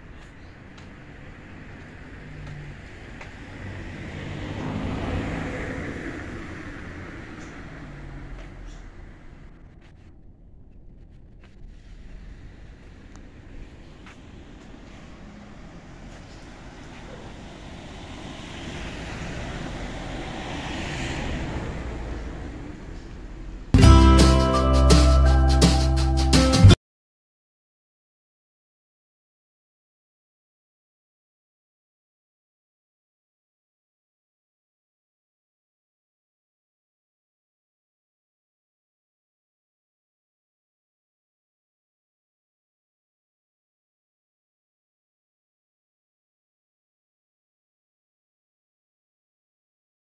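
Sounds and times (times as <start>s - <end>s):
motor vehicle passing by: 0.0s - 10.2s, 11.0s - 23.8s
low traffic rumble: 0.0s - 26.1s.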